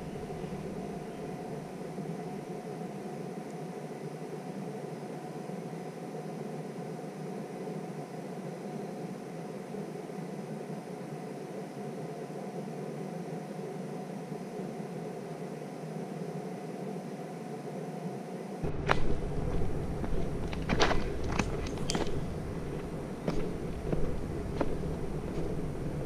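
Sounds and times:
steady hiss: 0:00.0 - 0:26.0
boots on rocky trail: 0:18.6 - 0:26.0.

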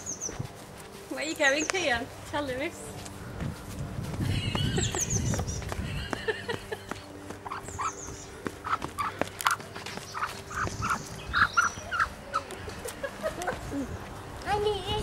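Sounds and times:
hen clucking: 0:07.4 - 0:13.5.

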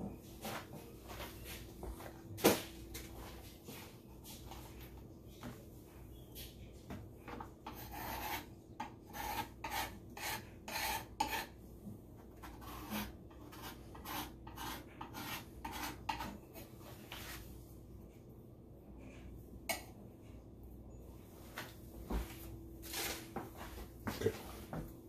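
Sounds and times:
knife rasping through food: 0:07.7 - 0:11.6, 0:12.5 - 0:16.7.

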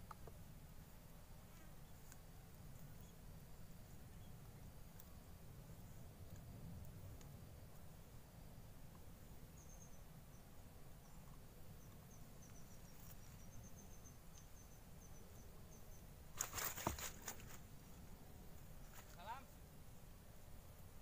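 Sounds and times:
rustling handling noise: 0:16.4 - 0:17.7.

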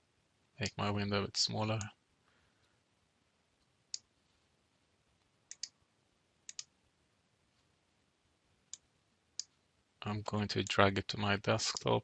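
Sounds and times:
computer mouse clicking: 0:05.5 - 0:05.8, 0:06.5 - 0:06.7.

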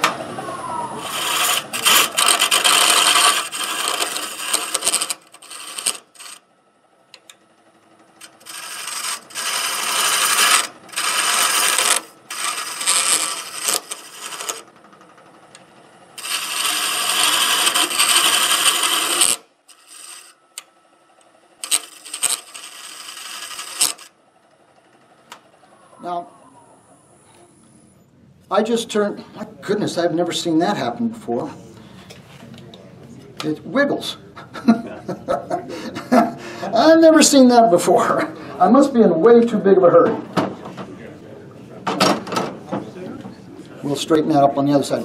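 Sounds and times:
lathe tool cutting wood: 0:00.9 - 0:06.4, 0:08.2 - 0:14.8, 0:16.1 - 0:20.4, 0:21.6 - 0:24.1.

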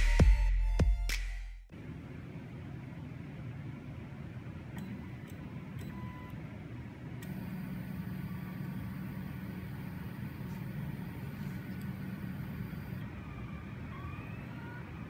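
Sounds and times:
stepper motors humming: 0:07.2 - 0:15.0.

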